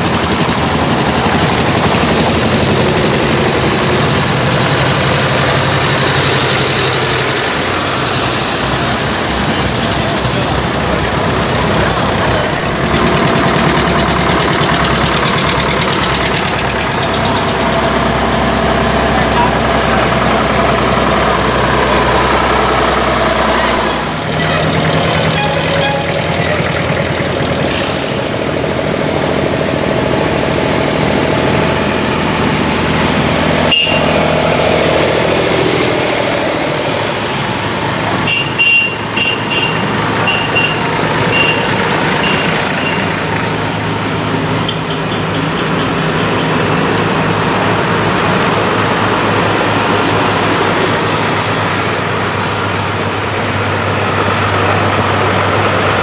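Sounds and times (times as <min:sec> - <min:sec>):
tractor diesel engines: 0:00.0 - 0:56.0
short high beeps: 0:33.7 - 0:34.1, 0:38.3 - 0:43.1.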